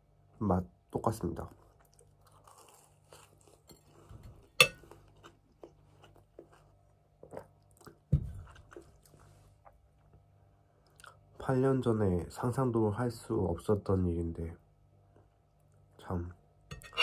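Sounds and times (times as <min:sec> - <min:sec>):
person chewing doughnut: 0:01.4 - 0:11.3
metal fork clinking on plate: 0:04.6 - 0:04.8.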